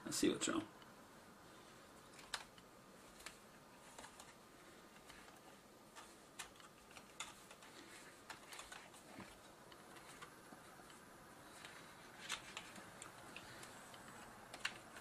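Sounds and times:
small plastic clicks: 2.0s - 4.3s, 9.7s - 15.0s.

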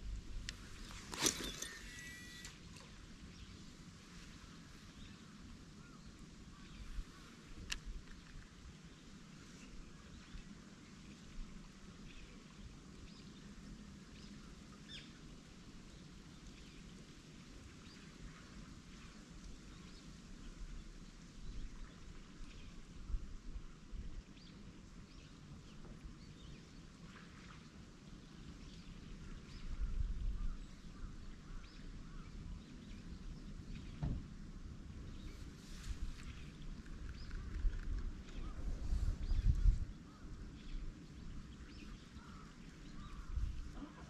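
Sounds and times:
faint bird chirps: 1.2s - 3.6s
low background rumble: 28.2s - 44.0s
soft knock: 34.0s - 34.2s
small birds chirping: 35.0s - 44.0s.

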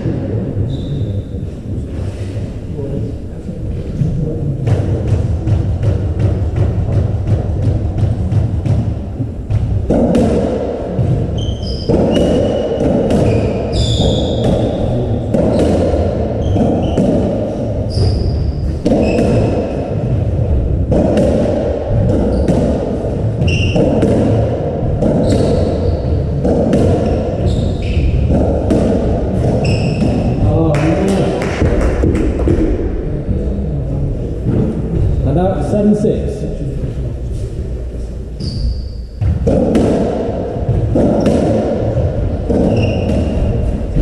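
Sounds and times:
shoes squeaking on wooden floor: 11.2s - 14.8s, 17.8s - 19.6s, 23.4s - 24.0s, 27.4s - 28.3s, 29.4s - 30.4s, 38.4s - 39.4s, 42.4s - 44.0s
ball knocking off rackets and walls: 39.2s - 44.0s.

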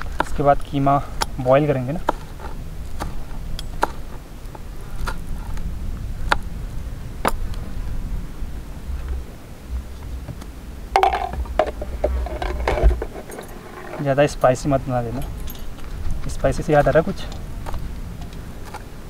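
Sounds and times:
wind rumble on microphone: 0.0s - 19.0s
metal rattle: 11.0s - 15.8s.

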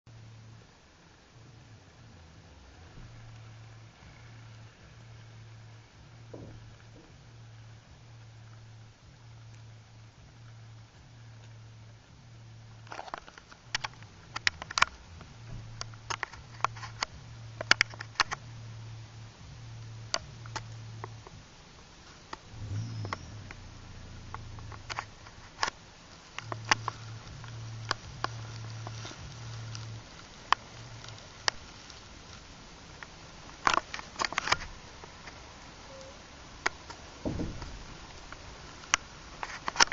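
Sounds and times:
sharp clicks and clacks: 12.9s - 18.5s.

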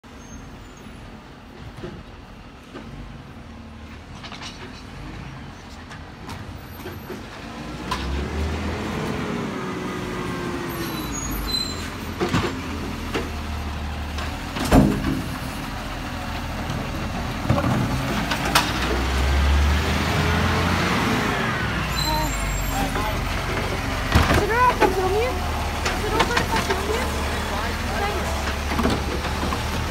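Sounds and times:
garbage truck diesel engine revving: 7.4s - 29.9s.

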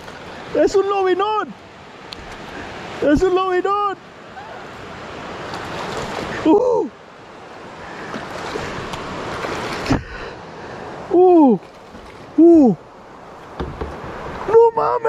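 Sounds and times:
water splashing: 0.0s - 10.4s, 11.0s - 15.0s
knock: 13.6s - 14.0s.

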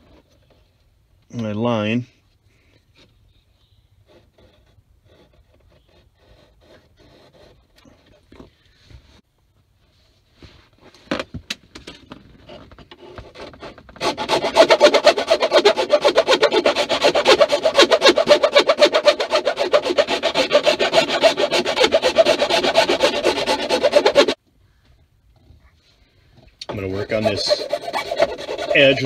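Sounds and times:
hand file rasping on plastic: 4.0s - 8.2s, 12.5s - 24.4s, 26.6s - 29.0s.

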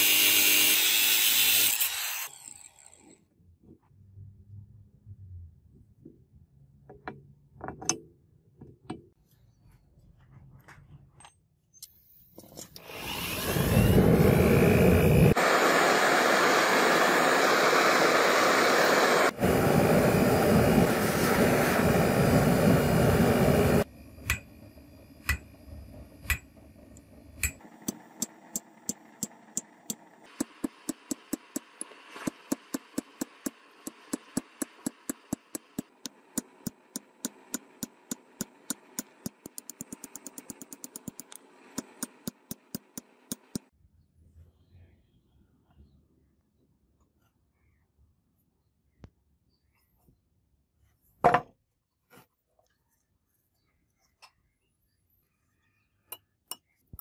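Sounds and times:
forge burner rushing: 12.8s - 43.7s.

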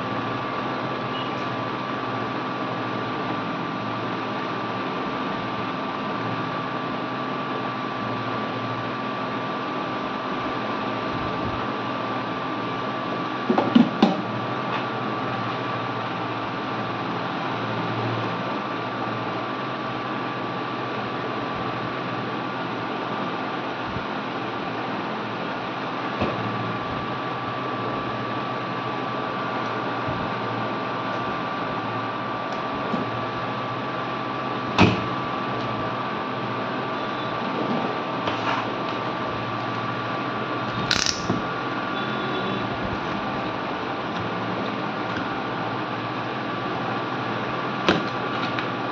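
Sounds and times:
faint hum and whine: 0.0s - 48.9s
sharp click: 40.8s - 41.4s.

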